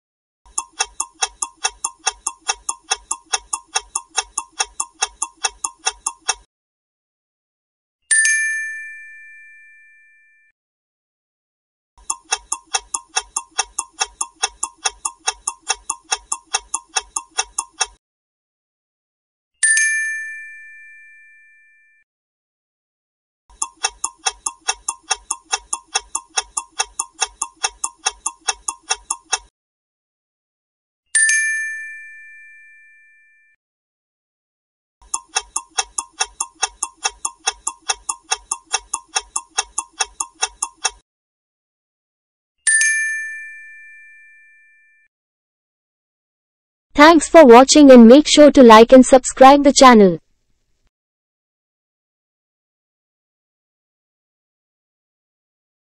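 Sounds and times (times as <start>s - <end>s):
fast clock ticking: 0.5s - 6.5s, 12.0s - 18.0s, 23.5s - 29.5s, 35.0s - 41.0s
bell ding: 8.1s - 10.5s, 31.2s - 33.5s, 42.7s - 45.0s.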